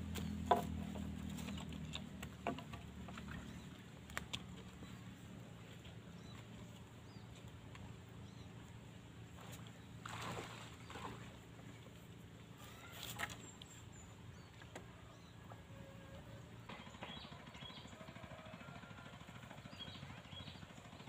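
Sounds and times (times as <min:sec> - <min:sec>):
rustling of bamboo poles: 0:00.0 - 0:13.9
faint distant motor hum: 0:00.0 - 0:21.0.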